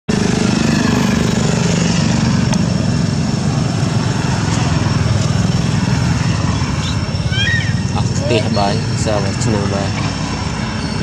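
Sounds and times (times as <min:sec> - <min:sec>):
small engine idling: 0:00.1 - 0:11.0.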